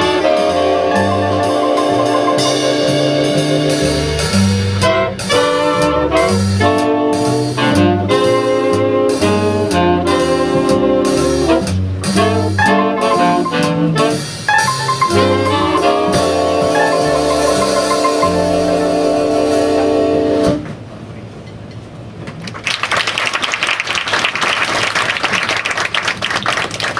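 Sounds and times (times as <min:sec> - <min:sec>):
upright bass: 0:00.0 - 0:20.6
saxophones and trumpets: 0:00.0 - 0:20.7
drums: 0:00.0 - 0:22.7.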